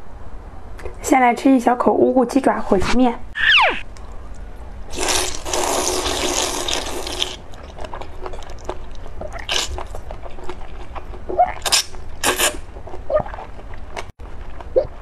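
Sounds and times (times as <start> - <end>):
wet chewing and smacking: 3.9 - 15.0
noodles being slurped: 4.9 - 10.8, 11.5 - 13.7.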